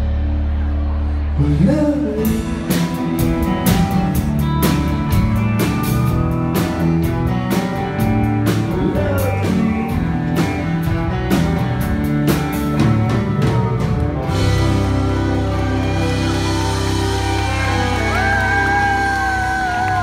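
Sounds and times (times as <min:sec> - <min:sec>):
person singing: 0:00.5 - 0:03.2, 0:08.6 - 0:10.2
drum kit steady beat: 0:02.2 - 0:19.7.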